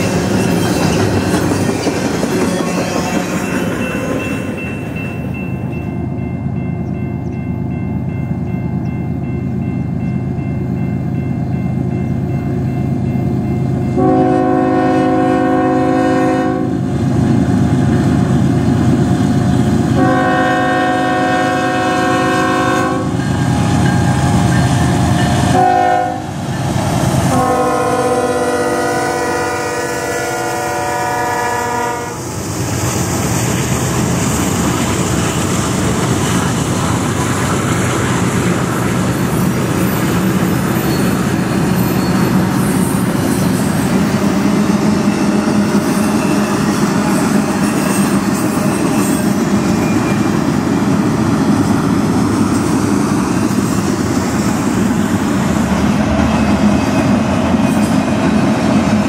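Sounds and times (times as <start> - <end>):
train cars rolling and clattering: 0.0 - 9.4, 32.3 - 59.0
train air horn: 14.0 - 16.8, 20.0 - 24.4, 25.5 - 26.4, 27.2 - 32.3.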